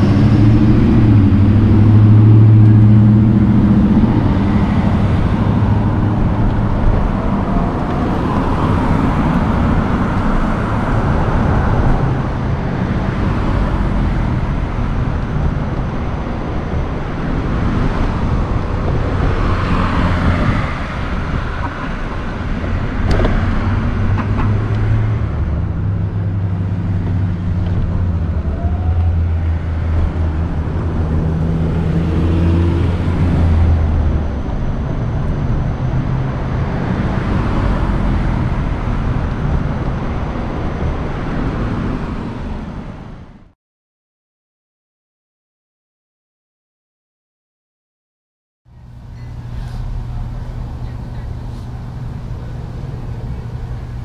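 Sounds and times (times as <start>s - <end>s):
cars passing: 0.0s - 43.6s, 48.7s - 54.0s
vehicle engine idling: 48.7s - 54.0s.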